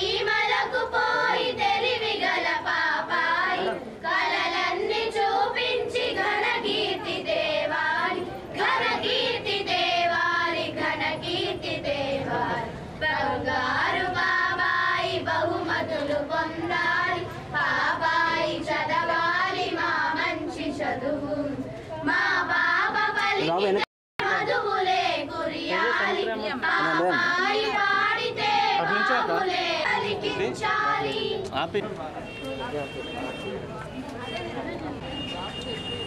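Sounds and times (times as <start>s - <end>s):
group singing a lullaby: 0.0s - 23.6s, 24.2s - 31.5s.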